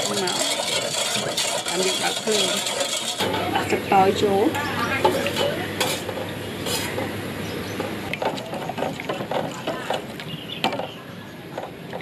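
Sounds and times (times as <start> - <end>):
metal ladle scraping a pot: 0.0 - 4.2, 4.9 - 7.2.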